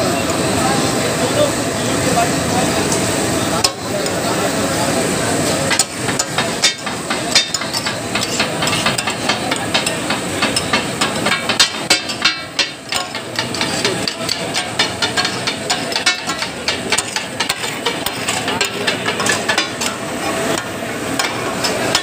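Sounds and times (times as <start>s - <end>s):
metal spatulas clacking on griddle: 5.7s - 20.0s.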